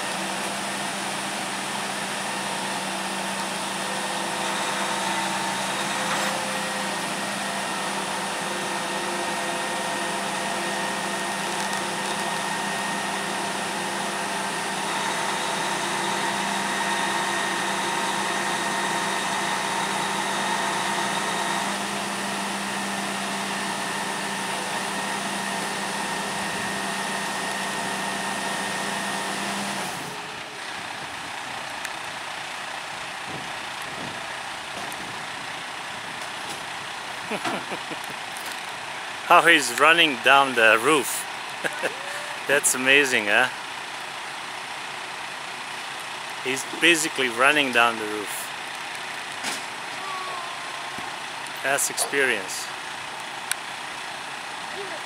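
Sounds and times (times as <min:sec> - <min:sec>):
truck engine running: 0:00.0 - 0:55.0
high hydraulic whine: 0:00.8 - 0:30.4.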